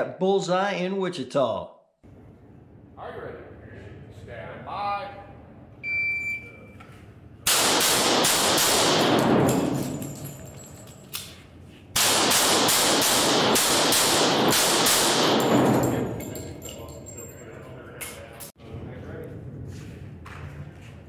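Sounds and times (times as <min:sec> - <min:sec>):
shot timer beep: 0:05.8 - 0:06.8
handgun shots echoing: 0:07.5 - 0:10.4, 0:12.0 - 0:16.6.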